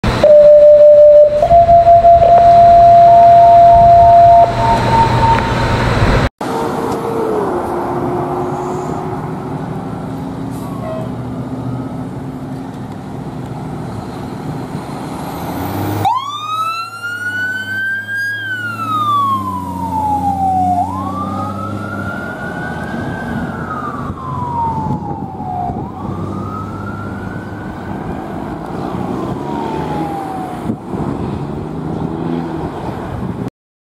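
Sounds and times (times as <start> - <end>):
fire engine diesel engine: 0.0 - 33.5
siren wailing: 0.1 - 5.9, 16.0 - 28.3, 29.2 - 30.8.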